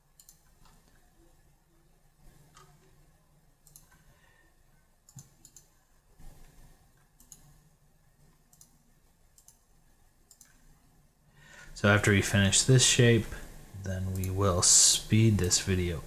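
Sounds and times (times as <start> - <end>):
low steady hum: 0.0 - 16.0
computer mouse clicks: 0.1 - 1.0, 2.4 - 3.0, 3.6 - 4.1, 5.1 - 5.7, 6.3 - 7.6, 8.3 - 9.7, 10.3 - 10.7, 14.1 - 14.4.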